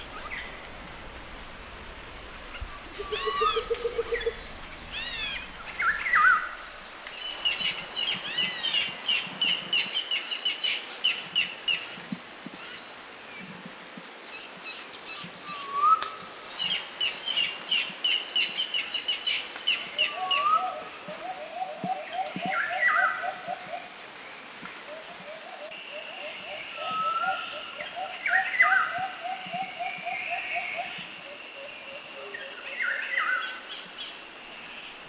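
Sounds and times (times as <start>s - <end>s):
low swooping bird call: 0.0s - 8.8s, 24.9s - 33.4s
birds chirping: 0.0s - 10.6s.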